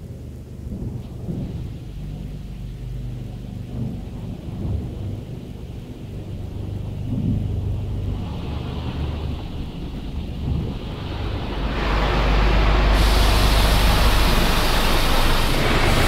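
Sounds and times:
car wash brush rumbling: 7.0 - 16.0
water spray hiss: 10.8 - 16.0.

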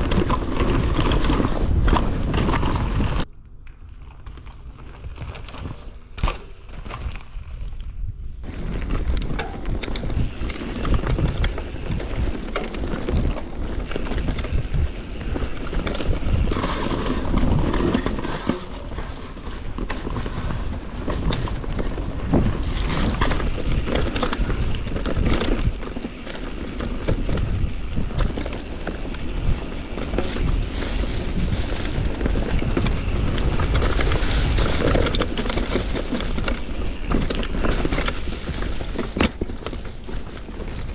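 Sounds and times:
wind buffeting microphone: 7.9 - 39.0
bike knocks and rattles: 8.4 - 40.9.

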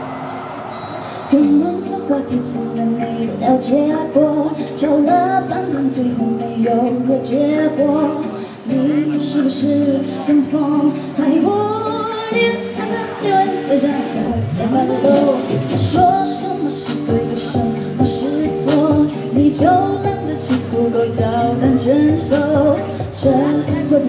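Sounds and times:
backing track chords: 0.0 - 24.0
woman singing into a microphone: 1.0 - 24.0.

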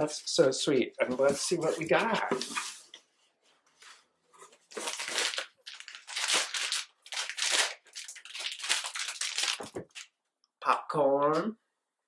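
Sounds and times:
plastic snack bags crinkling: 4.6 - 10.1.

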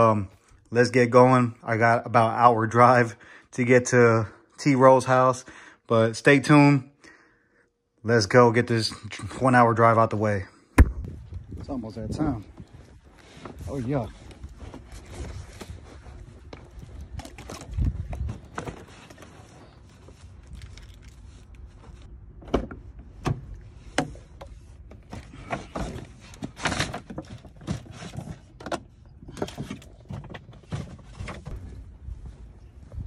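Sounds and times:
knocks and thumps of handling: 22.4 - 31.8.

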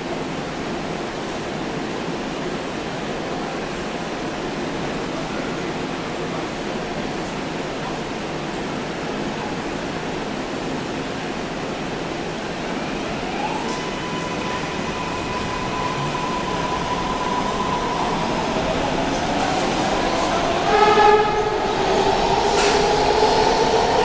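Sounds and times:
train rumble: 12.2 - 24.0.

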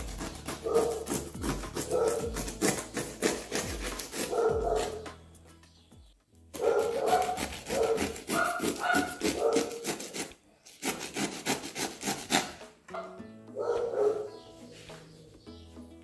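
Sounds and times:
serrated knife sawing through pastry: 0.0 - 5.0, 6.6 - 12.6.

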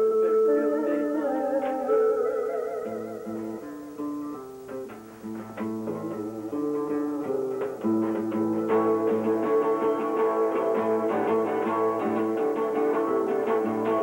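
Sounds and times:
guitars playing instrumental: 0.0 - 14.0.

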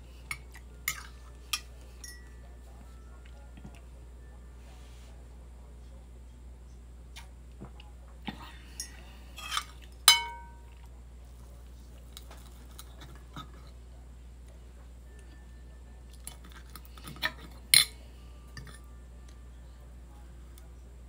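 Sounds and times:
fork clinking on a plate: 8.8 - 10.8.

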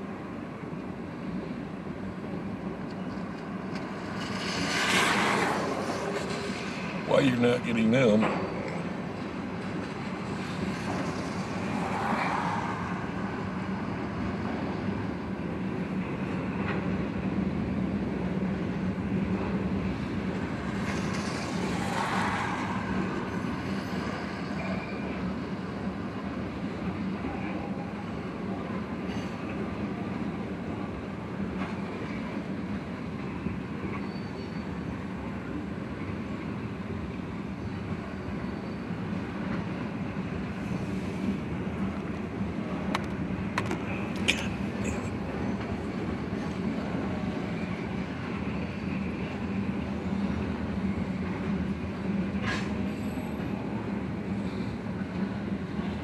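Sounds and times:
train wheels rumbling on rail: 0.0 - 56.0
high wheel squeals: 23.2 - 25.2, 33.9 - 34.9, 38.2 - 39.0.

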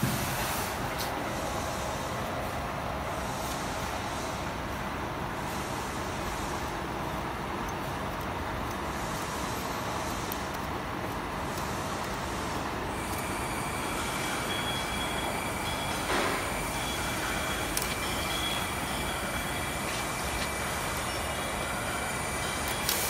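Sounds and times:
steady machinery noise: 0.0 - 23.0
faint high whine: 12.9 - 23.0.

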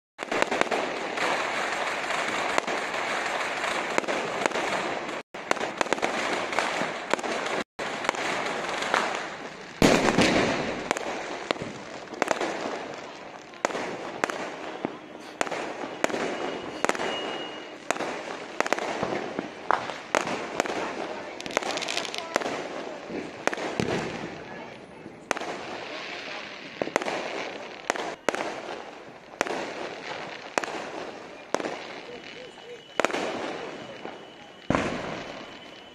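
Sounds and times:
sharp firework bangs: 0.2 - 32.2, 32.8 - 35.9
fireworks crackling: 0.2 - 35.9
deep firework boom: 9.8 - 12.8, 23.1 - 24.4, 34.7 - 35.3.

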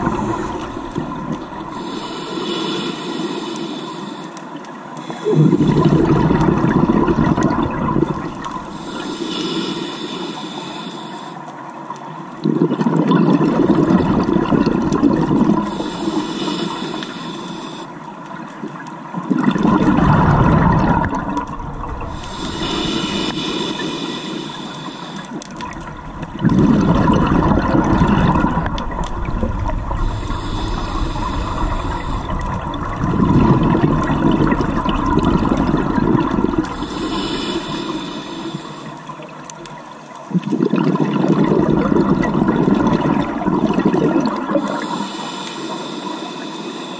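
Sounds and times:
exhaust bubbles bursting underwater: 0.0 - 1.9, 5.2 - 8.7, 12.4 - 16.2, 19.1 - 23.4, 25.5 - 37.9, 40.2 - 44.9
regulator hissing inhale: 0.0 - 5.6, 8.6 - 11.4, 15.6 - 18.0, 22.0 - 25.4, 29.9 - 32.9, 36.6 - 39.2, 44.5 - 46.9.

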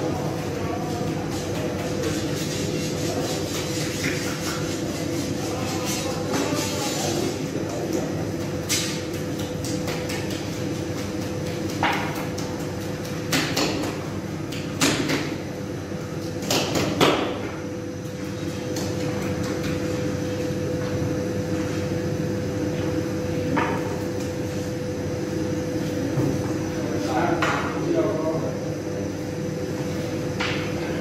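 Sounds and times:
steady hum: 0.0 - 31.0.

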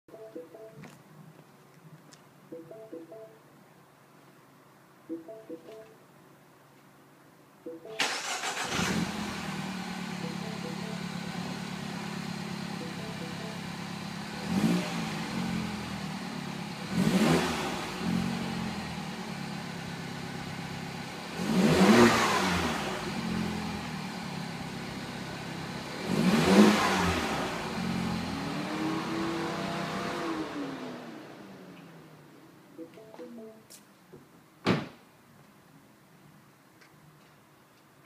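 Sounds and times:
car engine idling and revving: 8.1 - 32.5.

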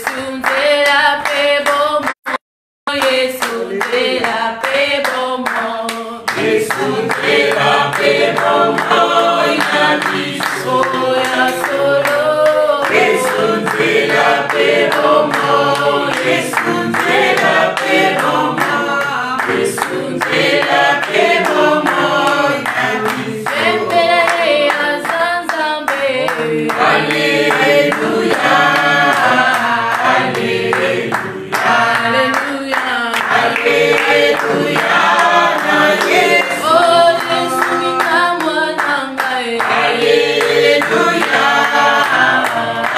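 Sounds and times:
group singing a worship song: 0.0 - 42.9
hands clapping in time: 3.0 - 42.9.

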